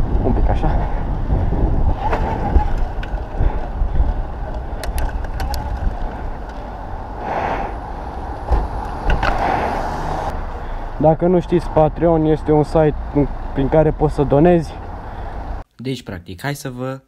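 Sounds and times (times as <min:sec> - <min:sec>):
wind rumbling on microphone: 0:00.0 - 0:10.4
road noise: 0:00.0 - 0:15.7.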